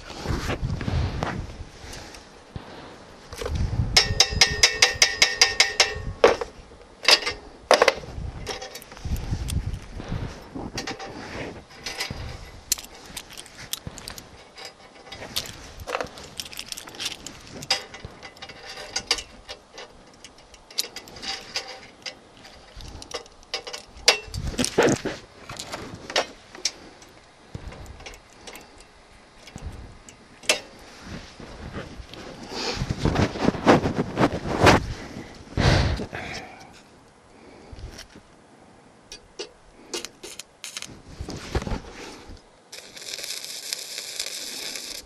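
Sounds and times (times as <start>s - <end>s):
metal rods clinking on steel plate: 3.4s - 9.2s, 10.7s - 30.9s
metal clatter: 3.4s - 33.6s.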